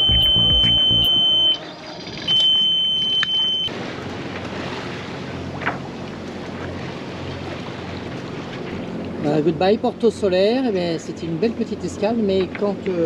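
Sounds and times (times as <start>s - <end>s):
music with high tone: 0.0s - 3.2s
wind and water rushing: 3.7s - 13.0s.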